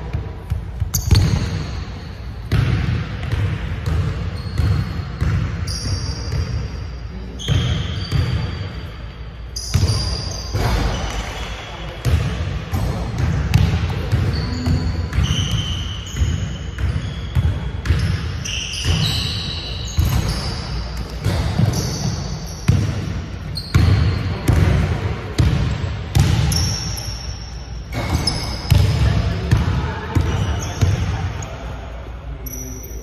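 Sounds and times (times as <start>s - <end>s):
sneaker squeaks: 0.5s - 24.7s, 25.4s - 31.8s, 32.4s - 33.0s
basketballs bouncing on hardwood: 2.5s - 5.6s, 12.0s - 19.2s, 21.2s - 26.8s, 27.9s - 31.2s.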